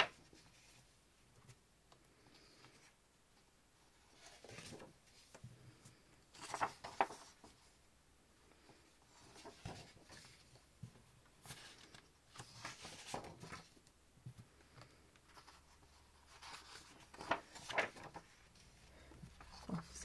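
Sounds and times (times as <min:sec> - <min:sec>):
paper sheets rustling: 0:04.1 - 0:05.4, 0:06.3 - 0:07.7, 0:09.1 - 0:10.6, 0:11.4 - 0:13.8, 0:15.3 - 0:20.0.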